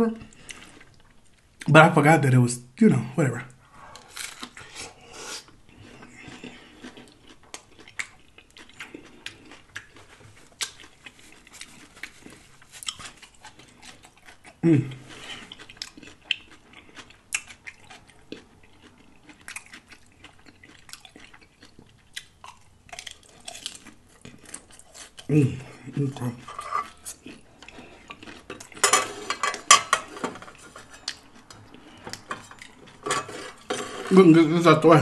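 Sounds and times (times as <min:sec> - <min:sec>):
chewing crunchy taco shell: 0:03.9 - 0:34.6
person making loud vocal sound: 0:14.6 - 0:15.0.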